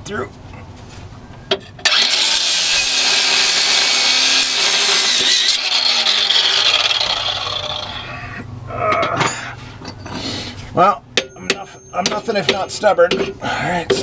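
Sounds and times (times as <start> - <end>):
angle grinder grinding metal: 1.8 - 8.2.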